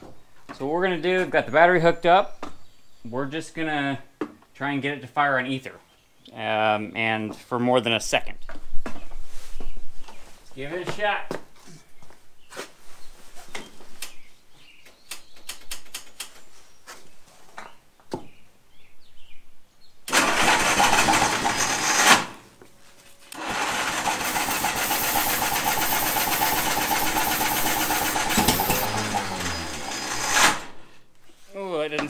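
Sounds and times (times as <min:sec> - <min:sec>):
starter motor cranking: 0:20.1 - 0:22.4, 0:23.3 - 0:30.9.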